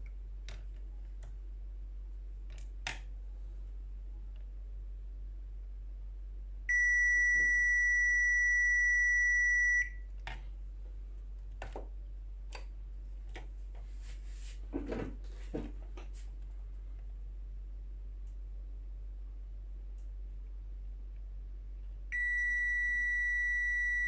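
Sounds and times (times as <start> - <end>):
multimeter continuity beep: 6.7 - 10.0, 22.1 - 24.0.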